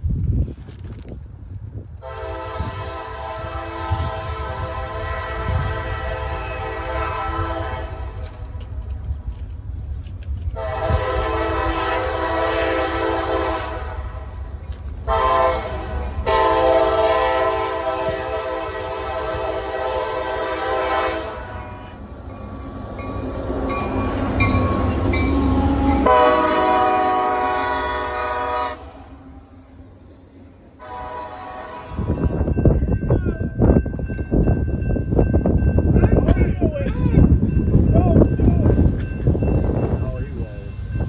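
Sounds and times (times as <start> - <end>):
train rumbling past: 0.0 - 41.0
train air horn blasts: 2.0 - 8.4, 10.5 - 14.4, 15.0 - 21.9, 25.5 - 29.3, 30.8 - 32.5.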